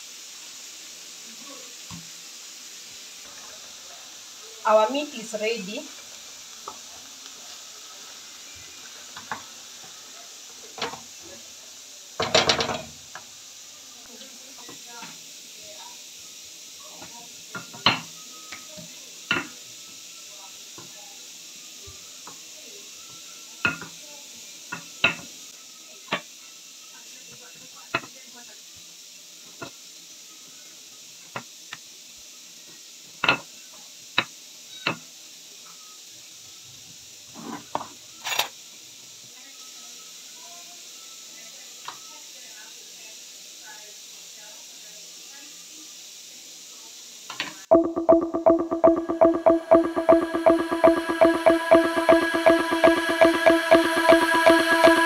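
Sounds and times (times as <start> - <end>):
filling sizzling: 0.0 - 12.4
steady hiss: 0.0 - 47.8.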